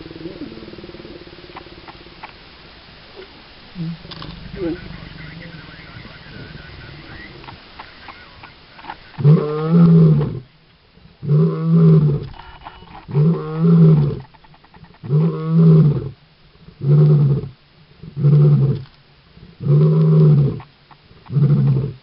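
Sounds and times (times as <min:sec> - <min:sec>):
lion roaring: 0:03.8 - 0:07.6, 0:09.1 - 0:10.4, 0:11.2 - 0:12.3, 0:13.1 - 0:14.3, 0:15.0 - 0:16.2, 0:19.6 - 0:20.6, 0:21.2 - 0:22.0.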